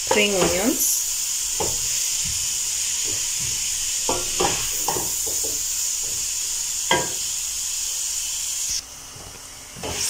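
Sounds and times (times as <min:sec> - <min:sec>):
vegetables sizzling in a pot: 0:00.0 - 0:10.0
spoon scraping and knocking pot: 0:03.0 - 0:06.2.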